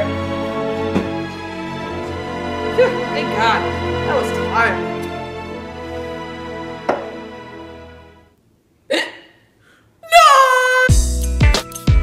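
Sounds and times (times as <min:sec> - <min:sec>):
background music with held chords: 0:00.0 - 0:08.4, 0:10.9 - 0:12.0.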